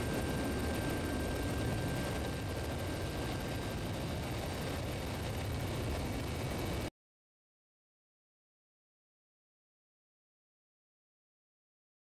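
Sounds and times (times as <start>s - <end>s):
faint high whines: 0.0s - 6.9s
helicopter engine and rotor rumble: 0.0s - 6.9s.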